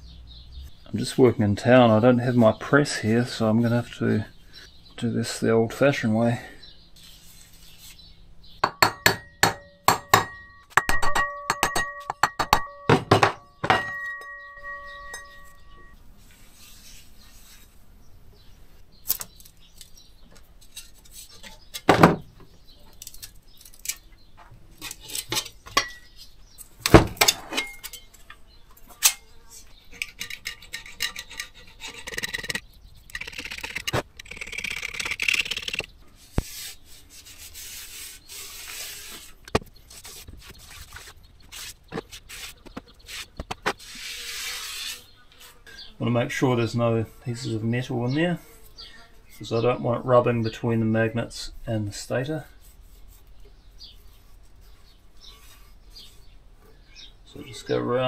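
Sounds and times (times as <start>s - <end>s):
parts knocking: 8.6s - 15.7s
hammer striking metal: 8.6s - 15.9s.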